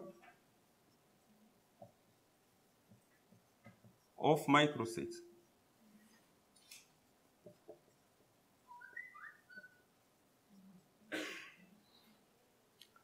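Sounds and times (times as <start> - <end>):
marker squeaking on whiteboard: 8.6 - 9.9.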